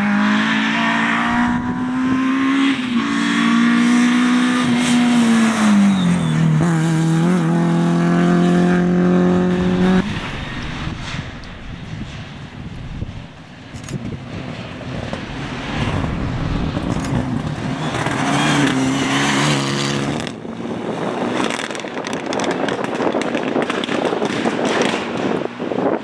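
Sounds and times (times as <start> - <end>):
rally car engine passing: 0.0 - 21.7
crackly engine noise: 9.5 - 18.8.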